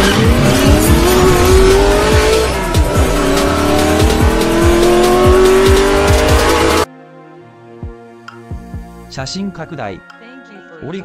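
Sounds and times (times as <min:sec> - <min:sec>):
intro music with steady beat: 0:00.0 - 0:06.9
racing car engine revving: 0:00.0 - 0:06.9.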